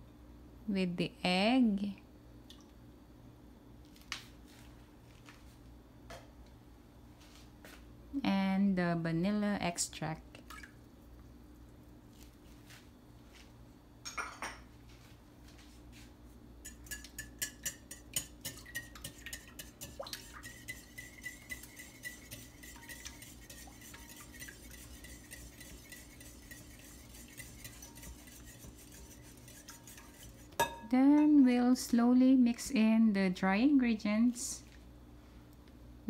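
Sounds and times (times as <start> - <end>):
utensil clinking in glass bowl: 16.6 - 30.9.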